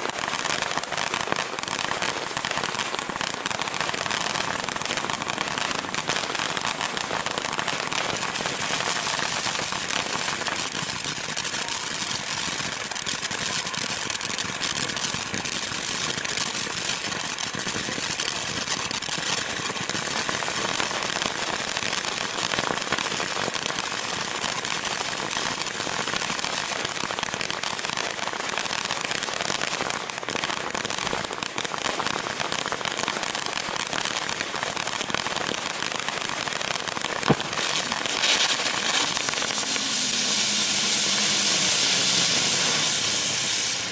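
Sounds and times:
firework fountain hissing and crackling: 0.0 - 43.9
firework pop: 37.2 - 43.4.

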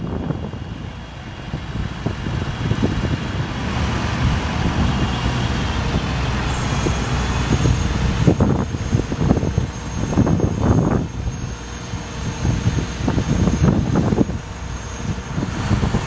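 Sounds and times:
hydraulic whine: 0.0 - 16.0
truck engine running: 0.0 - 16.0.

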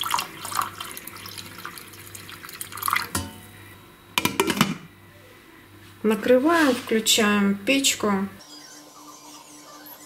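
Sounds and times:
water pouring into metal pot: 0.0 - 3.3.

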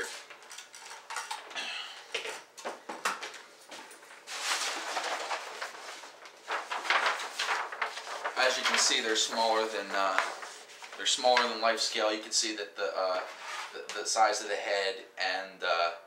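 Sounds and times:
paper rustling: 3.7 - 11.8.

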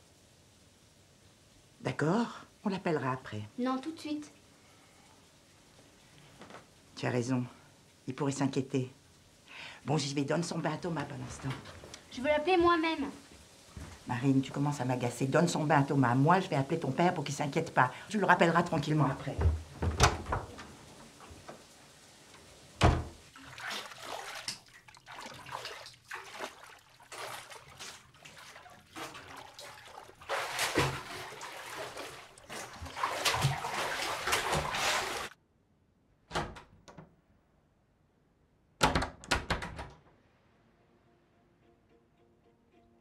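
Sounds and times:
bathwater splashing: 10.0 - 35.4.

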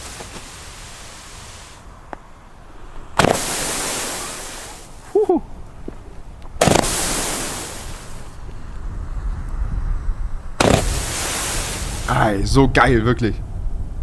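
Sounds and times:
hissing sparks: 0.0 - 1.8, 3.2 - 5.0, 6.6 - 8.4, 10.6 - 12.2
fireworks firing: 3.2 - 5.0, 6.6 - 8.4, 10.6 - 12.2.

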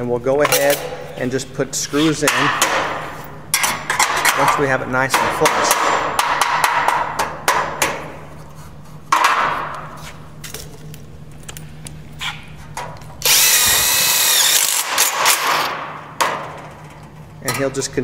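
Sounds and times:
power drill driving screw into steel: 13.2 - 15.7.

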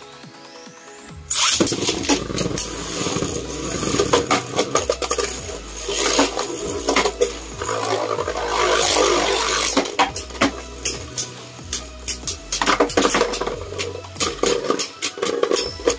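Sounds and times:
spinning tops clacking together: 1.3 - 15.9
spinning tops grinding on plastic: 1.3 - 15.9.

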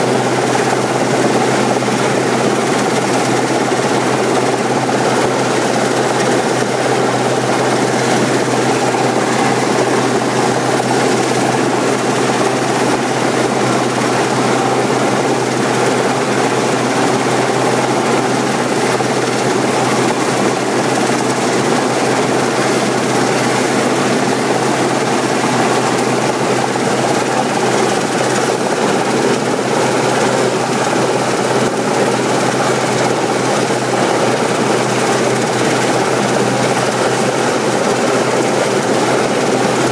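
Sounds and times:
helicopter rotor and turbine noise: 0.0 - 39.9.

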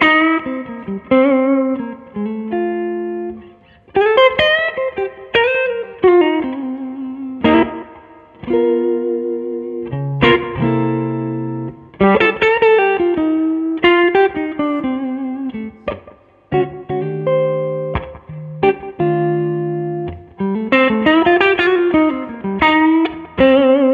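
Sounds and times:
electric guitar blues lead: 0.0 - 23.9.

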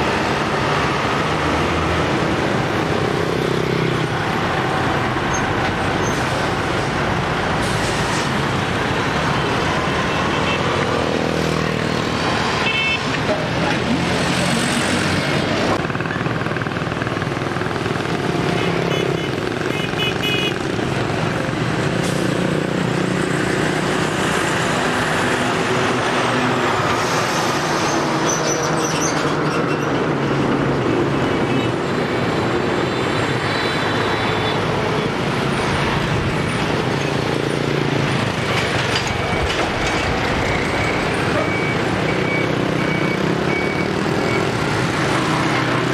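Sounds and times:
lorries passing: 0.0 - 45.9
motorbikes: 0.0 - 45.9.

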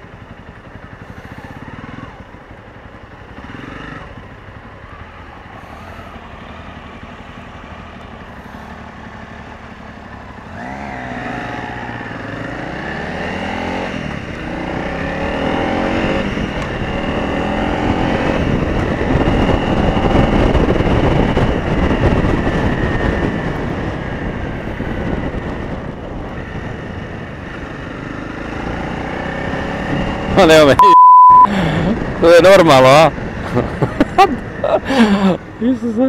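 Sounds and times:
motorcycle engine revving: 0.0 - 30.8
rushing wind noise: 13.9 - 30.7.

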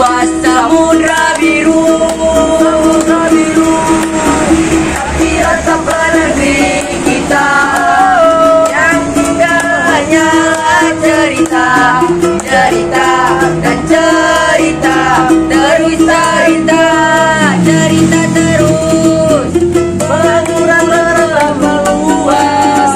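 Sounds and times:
men singing together: 0.0 - 22.9
strummed ukulele: 0.0 - 22.9.

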